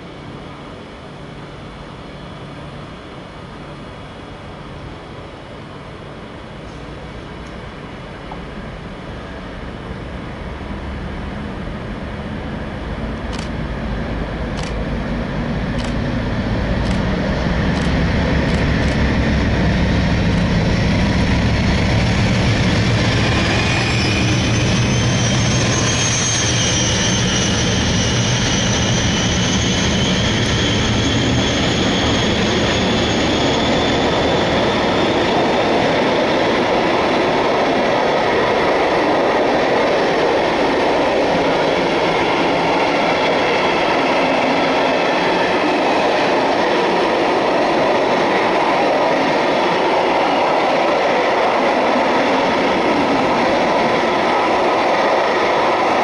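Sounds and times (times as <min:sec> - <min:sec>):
faint high-pitched wheel squeal: 0:23.1 - 0:35.3.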